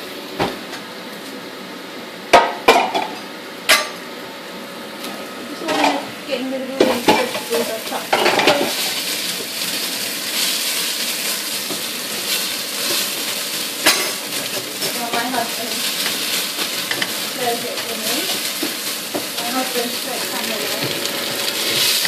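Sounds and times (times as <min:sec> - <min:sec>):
curry base sizzling in oil: 0:06.6 - 0:22.0.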